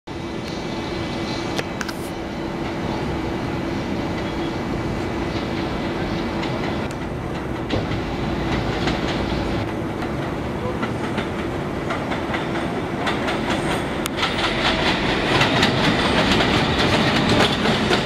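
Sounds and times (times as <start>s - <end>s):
subway train rumble and hum: 0.1s - 18.0s
wheel clicks over rail joints: 6.4s - 18.0s.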